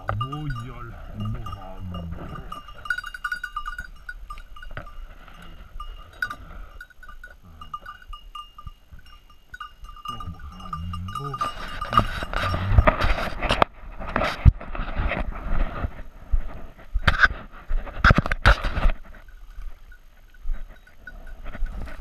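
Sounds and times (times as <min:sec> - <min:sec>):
small bell on dog collar jingling: 0:00.0 - 0:13.0, 0:19.2 - 0:22.0.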